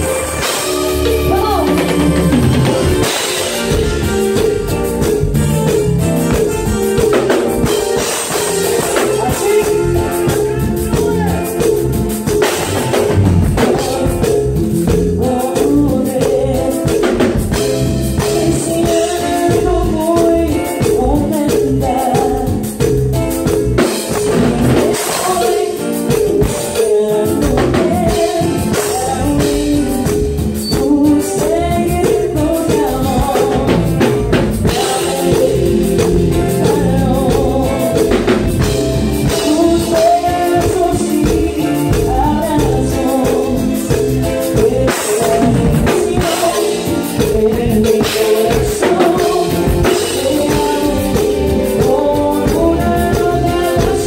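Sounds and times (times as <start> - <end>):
live band playing: 0.0 - 54.0
woman singing into a microphone: 13.6 - 22.9, 23.8 - 54.0.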